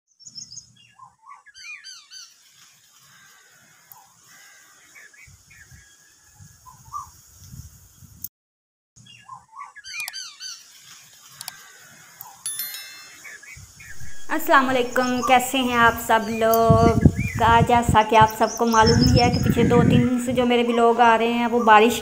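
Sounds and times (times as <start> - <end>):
birds chirping and calling: 0.2 - 5.8, 9.0 - 22.0
wind rumble on microphone: 5.3 - 8.3, 13.6 - 22.0.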